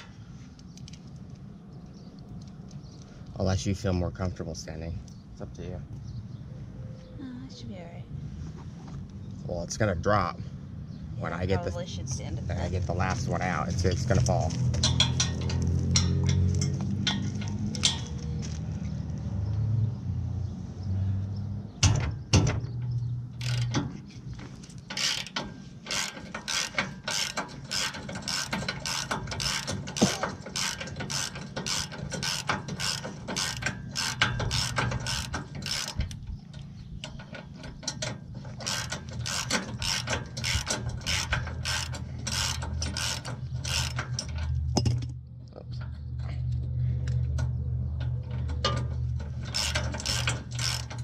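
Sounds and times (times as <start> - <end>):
ratchet wrench clicking: 23.4 - 23.8, 24.9 - 36.2, 37.0 - 44.6, 49.3 - 51.0.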